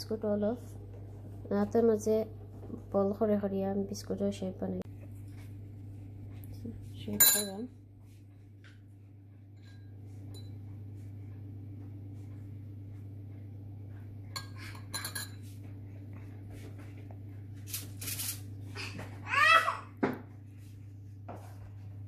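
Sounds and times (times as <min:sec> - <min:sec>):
steady low hum: 0:00.0 - 0:22.0
metal clinks against mixing bowl: 0:07.2 - 0:07.6, 0:14.4 - 0:15.4.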